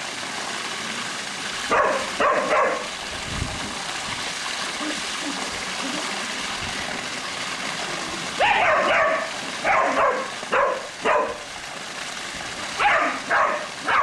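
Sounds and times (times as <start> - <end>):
water splashing from waterfall: 0.0 - 14.0
dog barking: 1.7 - 2.9, 8.4 - 11.4, 12.8 - 14.0.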